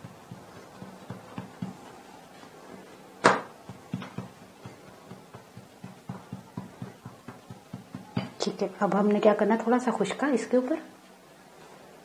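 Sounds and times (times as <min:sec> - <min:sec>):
hands patting dough: 0:00.0 - 0:09.0.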